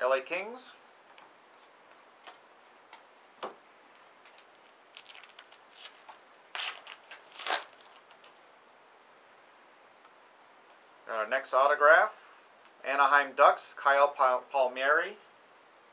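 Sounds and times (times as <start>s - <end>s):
card pack wrapper crinkling and tearing: 4.3s - 8.4s.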